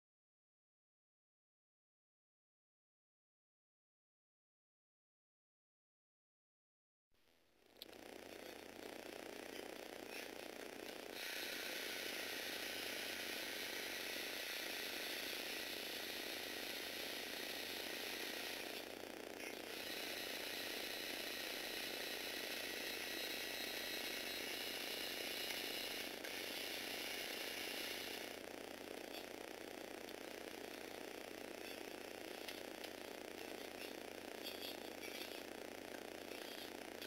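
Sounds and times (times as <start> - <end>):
small electric motors whirring: 7.8 - 37.0.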